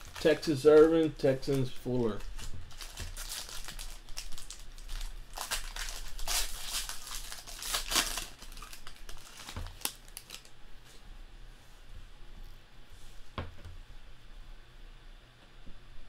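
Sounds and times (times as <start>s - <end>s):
foil wrapper tearing and crinkling: 0.0s - 10.5s.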